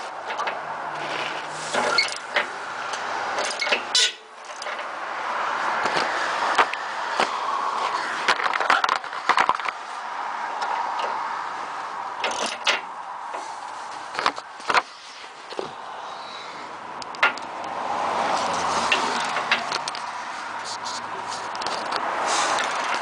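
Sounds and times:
hand tools clanking on steel: 1.3s - 4.9s.

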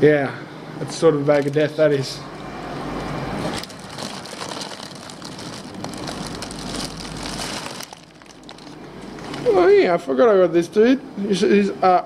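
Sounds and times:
low steady hum: 0.0s - 12.0s
plastic bags crinkling: 3.4s - 9.6s.

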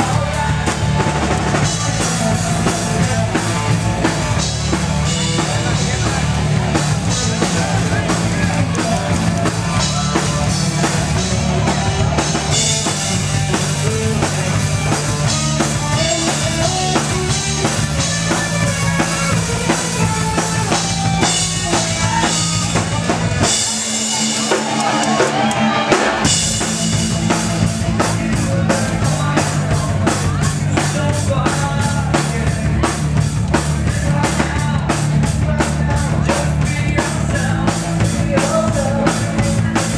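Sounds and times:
bass: 0.0s - 39.9s
drum kit: 0.0s - 39.9s
electric guitars: 0.0s - 39.9s.

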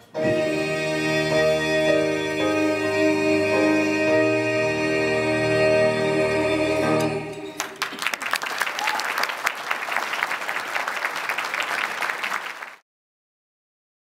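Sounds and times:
held music chord: 0.0s - 7.6s
audience applauding: 7.5s - 12.8s.

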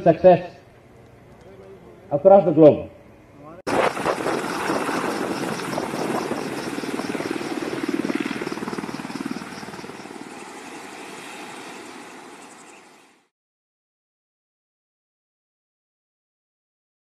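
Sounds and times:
helicopter engines droning: 0.0s - 13.3s
helicopter rotor blades beating: 3.7s - 13.3s.

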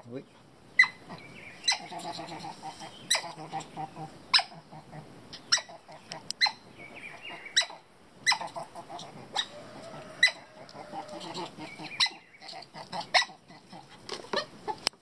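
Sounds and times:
otter squeaking: 8.3s - 13.2s.

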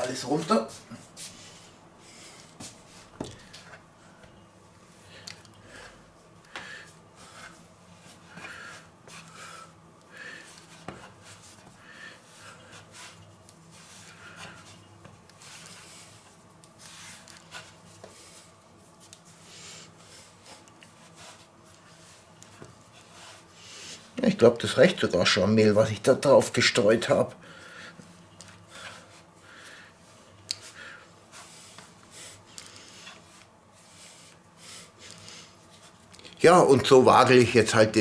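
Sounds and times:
hands kneading dough: 2.1s - 27.3s.

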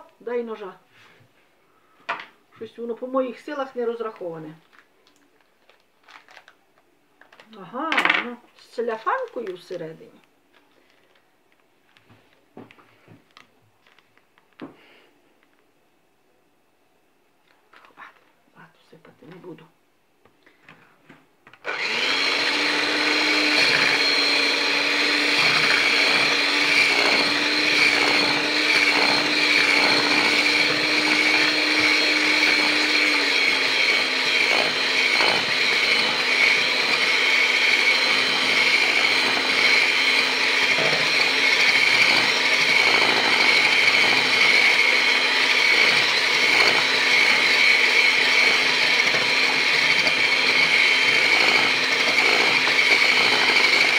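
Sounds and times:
electric hand mixer whisking: 21.6s - 53.9s.

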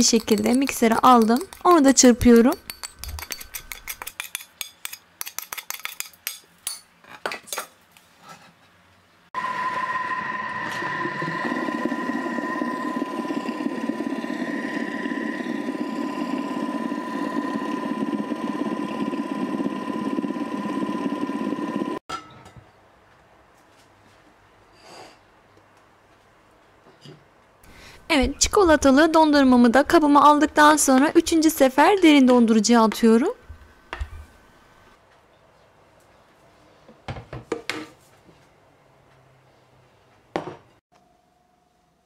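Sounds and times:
spatula scraping steel bowl: 0.0s - 6.1s
mixer motor whining: 9.4s - 22.0s.

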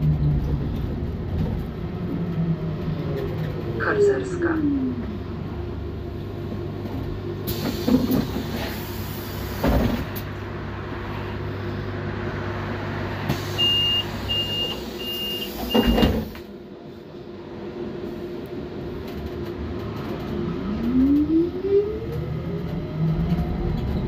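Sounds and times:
trolleybus electrical hum: 0.0s - 24.0s
pneumatic doors hissing: 7.5s - 10.0s, 13.3s - 16.4s
door warning beeps: 13.6s - 16.1s.

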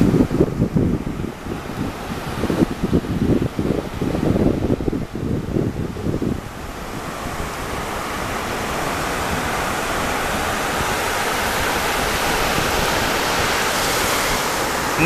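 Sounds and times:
surf washing over beach: 0.0s - 15.0s.

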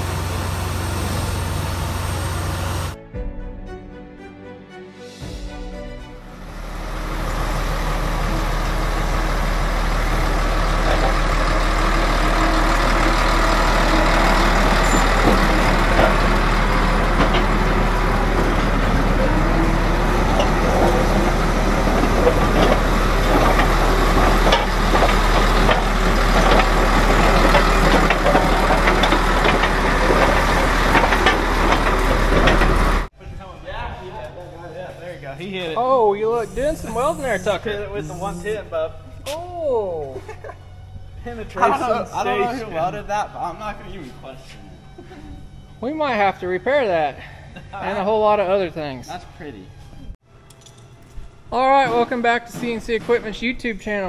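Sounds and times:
bulldozer diesel engine rumbling: 0.0s - 3.0s, 6.3s - 33.2s, 36.3s - 39.2s
metallic knocks: 14.6s - 33.0s.

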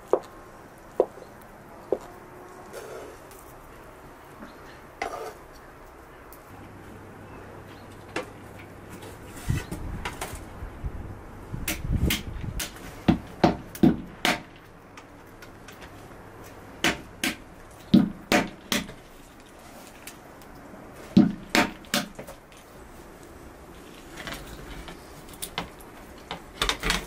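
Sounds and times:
stone knocking cracking walnuts: 11.7s - 15.5s, 16.8s - 19.0s.

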